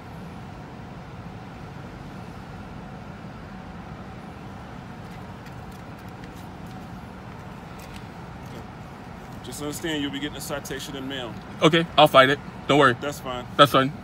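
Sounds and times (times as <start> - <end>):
car engine idling: 3.7 - 14.0.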